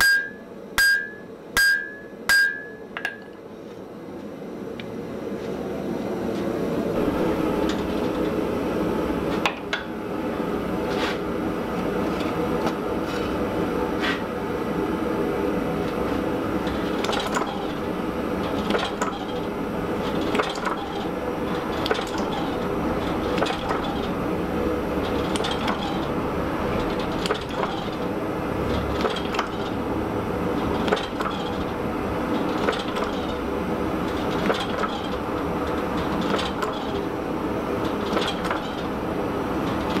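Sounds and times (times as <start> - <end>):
sharp metal clanks: 0.0 - 3.2.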